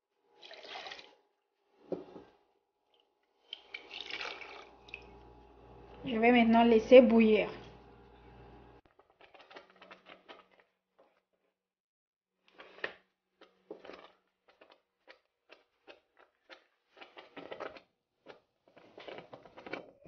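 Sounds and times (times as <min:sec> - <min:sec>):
wooden spoon stirring: 0:08.9 - 0:11.4, 0:12.6 - 0:20.0.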